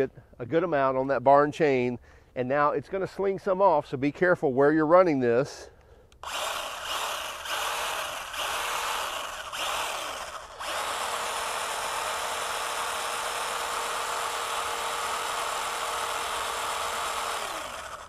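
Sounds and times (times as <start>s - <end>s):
cordless chainsaw running: 6.2s - 18.0s.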